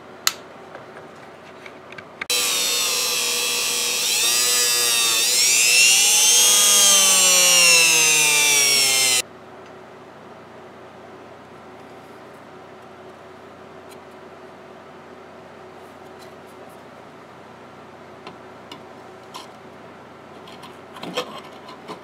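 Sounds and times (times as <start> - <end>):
rotary tool motor whine: 2.3 - 9.2.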